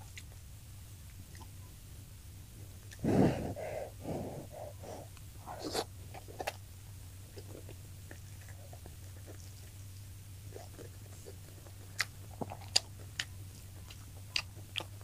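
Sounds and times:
steady low hum: 0:00.0 - 0:15.0
person chewing: 0:02.8 - 0:06.6, 0:07.3 - 0:15.0
loud breathy burst: 0:03.0 - 0:05.1
sharp breathy intake: 0:03.0 - 0:05.1.

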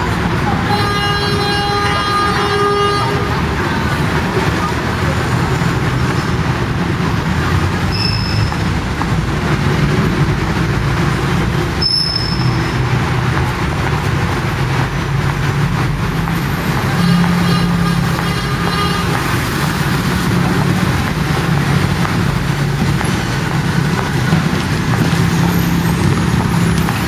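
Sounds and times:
traffic rumble of buses and cars: 0:00.0 - 0:27.0
short high-pitched squeaks: 0:07.9 - 0:08.6, 0:11.8 - 0:12.8.

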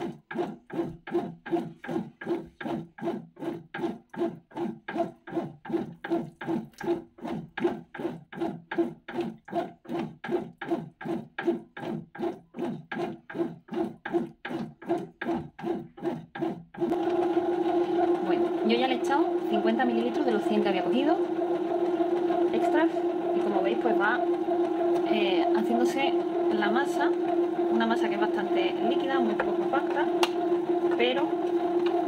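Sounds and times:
dough slapping and rubbing: 0:00.0 - 0:17.0
bread machine motor hum: 0:00.0 - 0:32.0.

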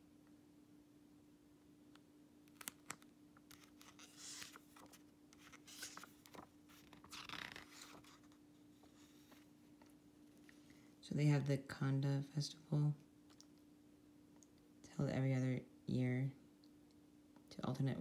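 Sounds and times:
paper booklet rustling: 0:02.5 - 0:10.6.

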